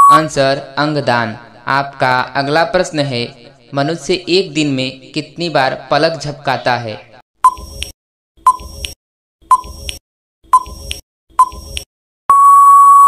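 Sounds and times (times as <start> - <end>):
long steady beep: 0.0 - 0.3, 12.3 - 13.0
short countdown beeps: 0.0 - 0.3.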